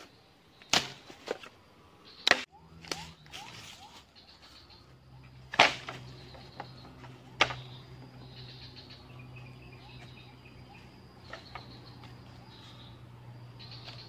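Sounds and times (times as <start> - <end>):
insects chirring: 0.0 - 14.0
bamboo poles knocking: 0.7 - 1.5, 2.2 - 3.5, 5.5 - 7.8.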